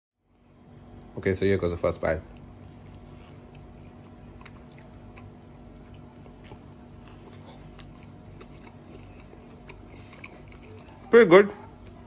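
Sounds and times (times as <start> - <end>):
low steady hum: 0.2 - 12.0
person chewing: 2.3 - 11.1.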